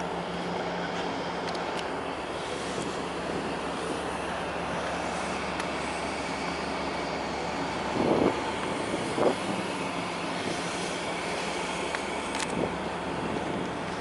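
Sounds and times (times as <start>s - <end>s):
ship engines humming: 0.0s - 14.0s
wind noise: 7.8s - 10.8s, 12.4s - 14.0s.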